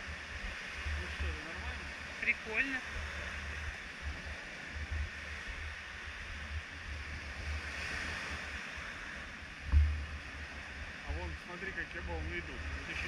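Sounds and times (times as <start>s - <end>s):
sea waves breaking on shore: 0.0s - 13.0s
wind buffeting microphone: 0.0s - 13.0s
low thump: 9.6s - 10.2s.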